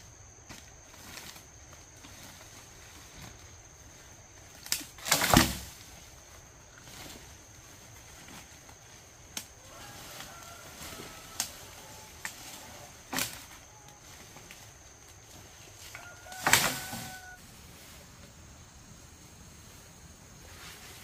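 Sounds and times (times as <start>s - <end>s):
twigs and leaves crackling: 0.0s - 18.4s
branches snapping: 4.5s - 5.9s, 9.3s - 17.4s.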